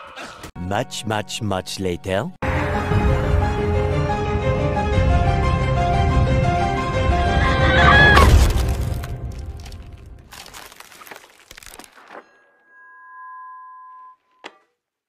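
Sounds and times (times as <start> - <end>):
orchestral music: 2.4 - 10.3
crash: 8.0 - 12.4
ice cracking and shattering: 8.2 - 12.2
two-note electronic beep: 12.6 - 14.3.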